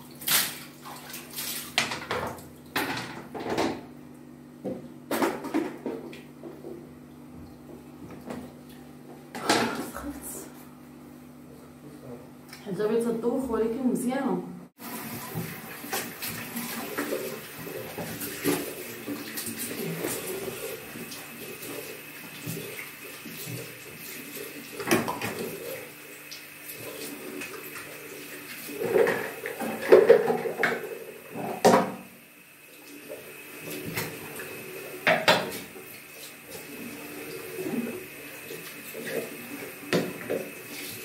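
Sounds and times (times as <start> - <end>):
running tap water: 14.8 - 41.0.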